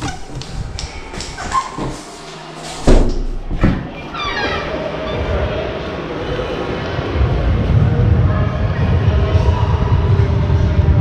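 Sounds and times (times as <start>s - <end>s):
squeaks: 0.0s - 2.1s, 3.5s - 4.9s
footsteps: 0.0s - 4.0s
sports hall background noise: 0.0s - 11.0s
loud thump: 2.8s - 3.9s
door handle and door opening: 2.8s - 4.7s.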